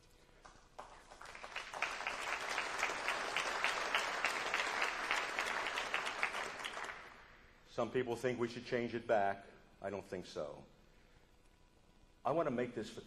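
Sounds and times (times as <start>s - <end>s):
audience applauding: 0.4s - 7.3s.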